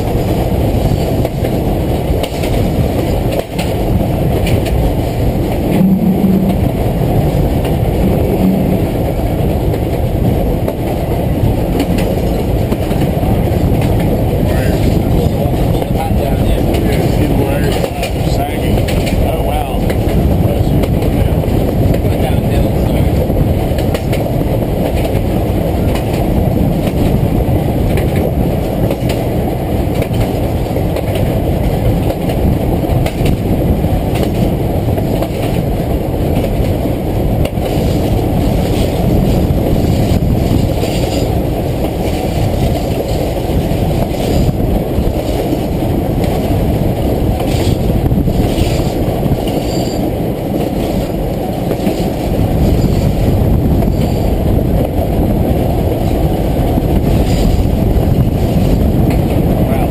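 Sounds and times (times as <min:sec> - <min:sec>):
train wheels rumbling on rail: 0:00.0 - 0:59.9
sharp clicks and knocks: 0:02.2 - 0:06.8, 0:09.7 - 0:11.1, 0:11.7 - 0:16.0, 0:16.6 - 0:21.2, 0:23.7 - 0:25.3, 0:27.9 - 0:29.2, 0:29.9 - 0:31.3, 0:33.0 - 0:33.4, 0:34.1 - 0:35.6.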